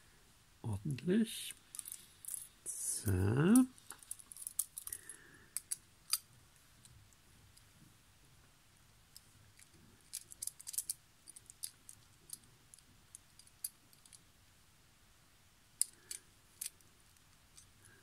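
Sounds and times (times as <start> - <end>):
toy car parts clicking: 9.6 - 14.2, 15.8 - 16.8.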